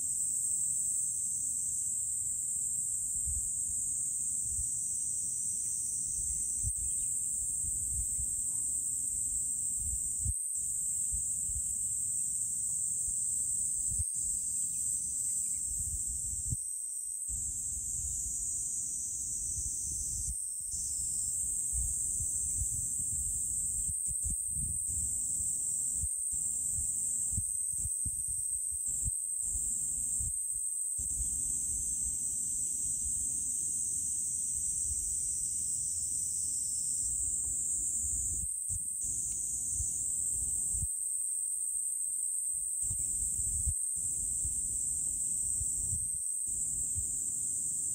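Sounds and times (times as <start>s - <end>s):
high-pitched insect drone: 0.0s - 47.9s
wind rumble on microphone: 3.0s - 4.8s, 6.0s - 11.9s, 13.0s - 14.4s, 15.4s - 16.7s, 17.3s - 33.3s, 34.5s - 36.0s, 37.0s - 41.1s, 42.2s - 47.2s.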